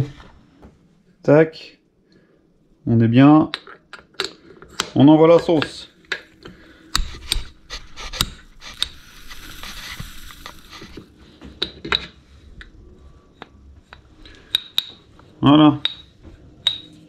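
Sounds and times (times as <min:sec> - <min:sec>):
metal scraping rub: 0:07.0 - 0:11.1.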